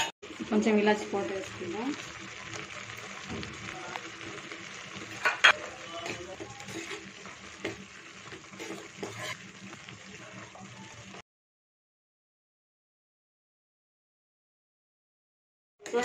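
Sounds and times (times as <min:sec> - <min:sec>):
water boiling and bubbling: 0:00.2 - 0:11.2.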